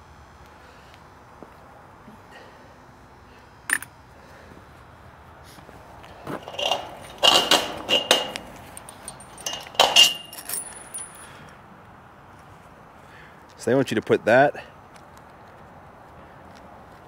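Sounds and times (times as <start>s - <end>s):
metal hardware clinking: 6.0s - 11.4s.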